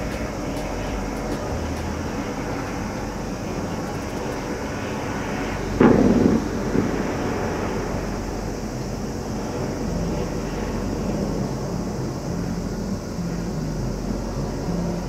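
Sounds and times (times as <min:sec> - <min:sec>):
distant fireworks booming: 0:00.0 - 0:08.6
hum of city noise: 0:00.0 - 0:15.0.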